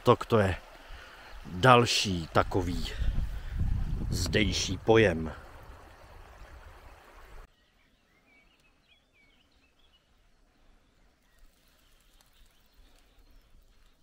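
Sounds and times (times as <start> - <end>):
faint clicks: 11.3 - 14.0.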